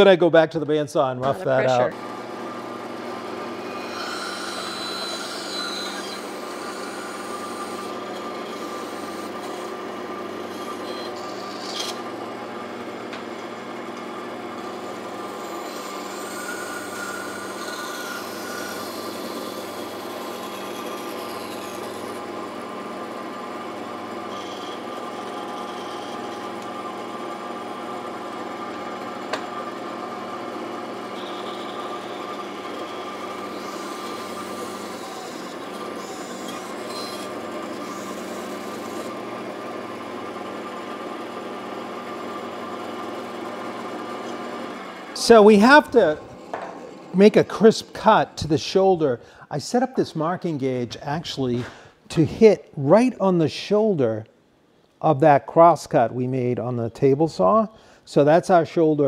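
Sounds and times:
bandsaw humming: 1.2 - 54.1
saw blade rasping in wood: 3.4 - 12.1, 14.6 - 22.9, 24.1 - 27.2, 31.1 - 40.0.

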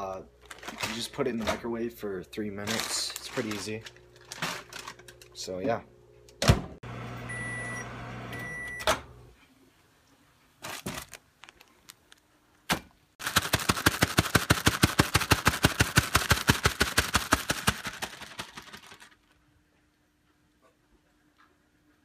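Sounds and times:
microwave oven humming: 2.1 - 9.4
microwave beeping: 6.4 - 9.3.

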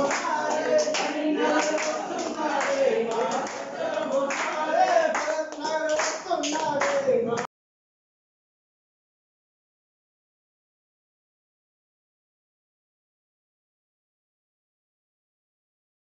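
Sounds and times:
rhythmic hand clapping: 0.0 - 7.5
voices singing devotional song: 0.0 - 7.5.

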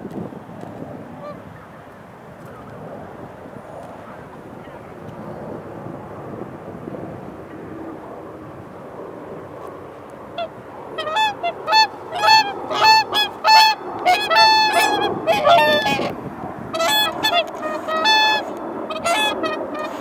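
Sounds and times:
swans calling: 10.4 - 20.0.

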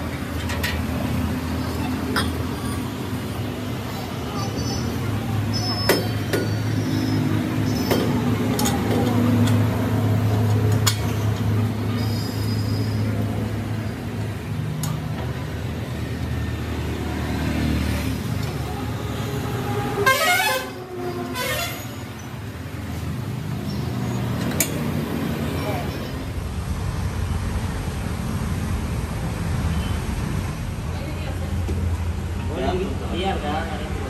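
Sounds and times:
vehicle engine humming: 0.0 - 34.0
vehicle horn: 20.0 - 22.0.

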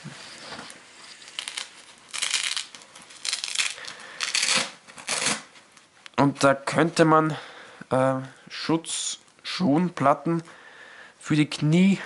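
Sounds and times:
hook-and-loop fastener ripping: 1.1 - 5.6.

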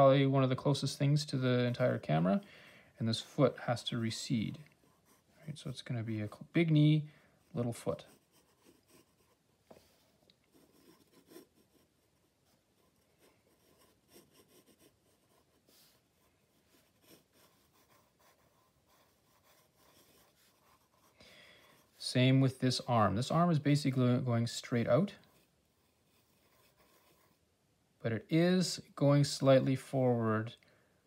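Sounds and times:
pencil scratching on paper: 4.5 - 5.6, 7.4 - 9.9, 10.5 - 24.1, 25.1 - 27.5.

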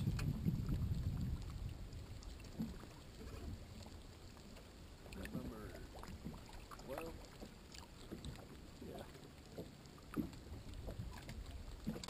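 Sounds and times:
low wind rumble: 0.0 - 6.4, 10.3 - 12.0
water lapping against hull: 0.0 - 12.0.

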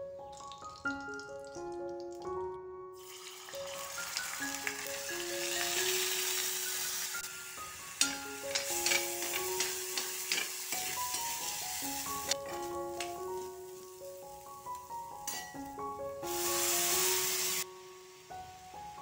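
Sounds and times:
light background music: 0.0 - 19.0
rice sizzling in hot ghee: 3.0 - 19.0
steel spoon scraping a pan: 8.0 - 12.7.

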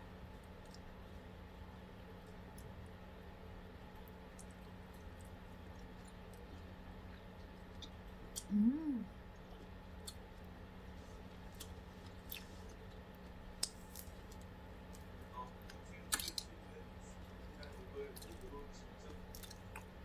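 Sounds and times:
steady low hum: 0.0 - 20.0
person humming mm: 8.5 - 9.1.

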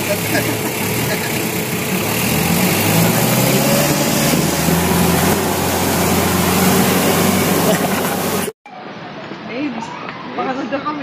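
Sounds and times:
vehicle engine humming: 0.0 - 8.6
road and wind noise: 0.7 - 9.5.

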